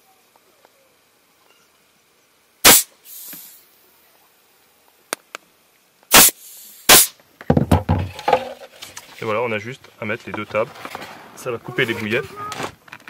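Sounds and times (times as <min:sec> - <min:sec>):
compressed air blasts: 0:02.6 - 0:03.7, 0:06.1 - 0:07.2.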